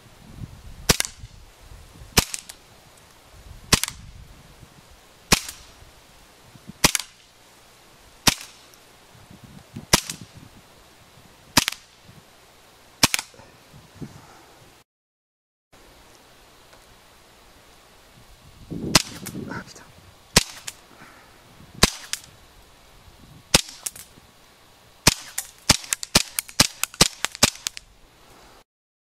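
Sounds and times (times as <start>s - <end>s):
airsoft pistol shots: 0.9s - 1.2s, 2.2s - 2.6s, 3.7s - 4.0s, 5.3s - 5.7s, 6.8s - 7.2s, 8.2s - 8.6s, 9.9s - 10.3s, 11.6s - 11.9s, 13.0s - 13.3s, 18.9s - 19.4s, 20.4s - 20.8s, 21.8s - 22.3s, 23.5s - 24.0s, 25.0s - 27.8s.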